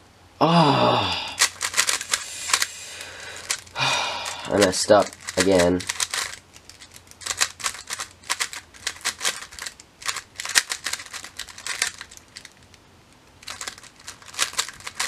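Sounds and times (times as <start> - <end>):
speed cube clicking: 1.4 - 2.8, 3.4 - 3.7, 4.4 - 12.7, 13.4 - 15.0.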